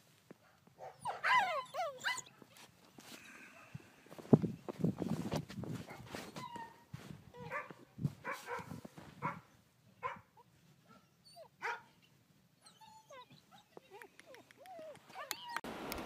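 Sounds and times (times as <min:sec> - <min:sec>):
puppy barking: 0:00.5 - 0:02.3, 0:07.4 - 0:12.0.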